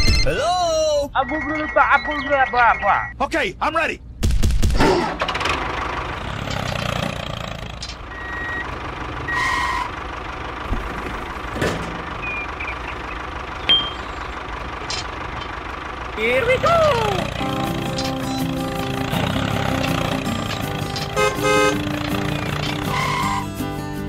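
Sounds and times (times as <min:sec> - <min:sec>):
reversing beeps: 0:01.2 - 0:03.2, 0:08.1 - 0:08.7, 0:12.2 - 0:14.0
vehicle engine running: 0:05.1 - 0:24.0.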